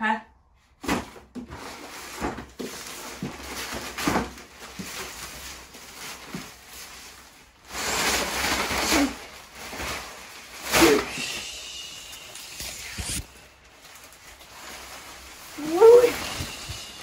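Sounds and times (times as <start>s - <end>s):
shower curtain rustling: 0.8s - 17.0s.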